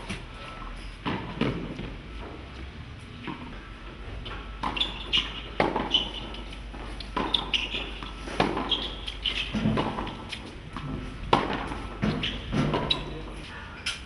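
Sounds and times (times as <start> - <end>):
ball bouncing: 4.6 - 6.5, 7.1 - 13.1
rackets hitting tennis ball: 4.6 - 13.2.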